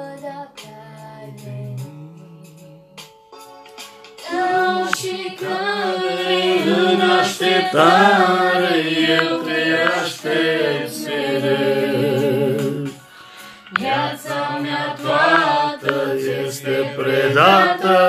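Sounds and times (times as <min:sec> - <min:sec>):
young woman singing unaccompanied: 0:00.0 - 0:02.6, 0:04.2 - 0:10.3, 0:13.7 - 0:18.0.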